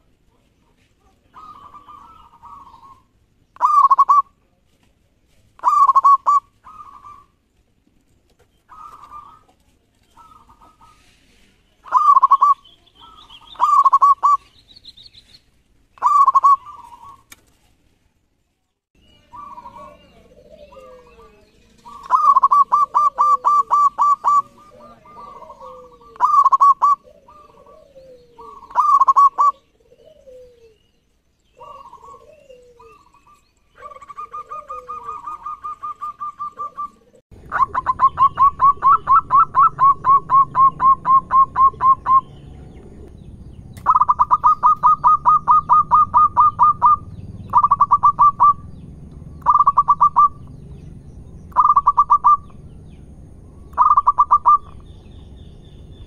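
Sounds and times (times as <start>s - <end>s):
dove cooing: 0.0s - 4.4s, 5.6s - 7.4s, 8.7s - 11.2s, 11.8s - 14.6s, 16.0s - 17.3s, 19.2s - 30.9s, 31.5s - 43.1s, 43.8s - 48.7s, 49.4s - 50.6s, 51.5s - 52.6s, 53.7s - 54.9s.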